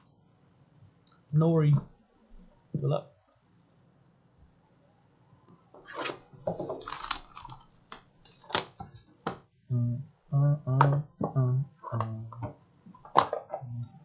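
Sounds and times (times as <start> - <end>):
plastic wrap crinkling and tearing: 6.6 - 8.6.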